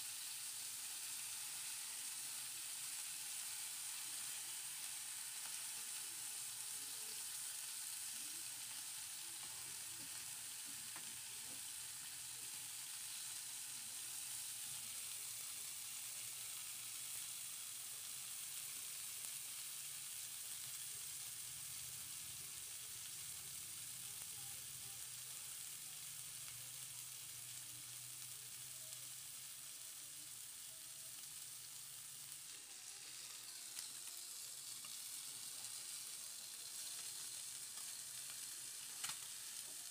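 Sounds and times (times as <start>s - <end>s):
fish sizzling in oil: 0.0s - 39.9s.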